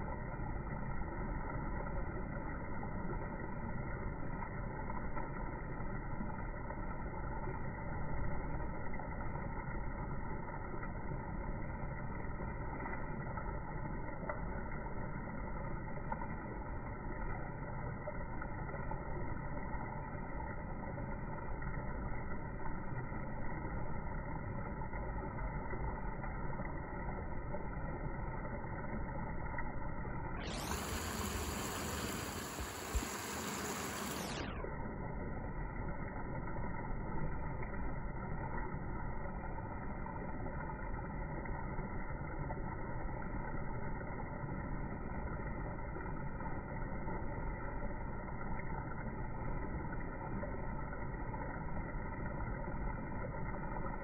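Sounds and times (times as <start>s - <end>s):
low rumbling background noise: 0.0s - 54.0s
bright hiss: 30.5s - 34.3s.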